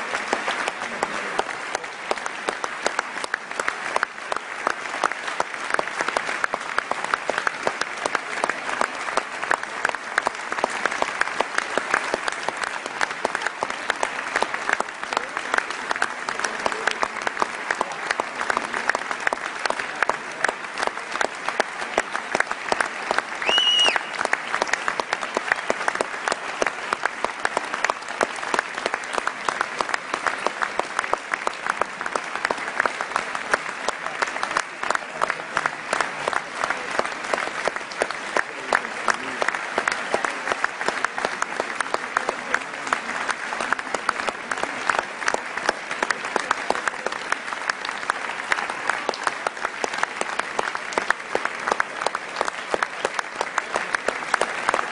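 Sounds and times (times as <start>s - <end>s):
audience clapping: 0.0s - 54.9s
high-pitched call from crowd: 23.4s - 24.2s.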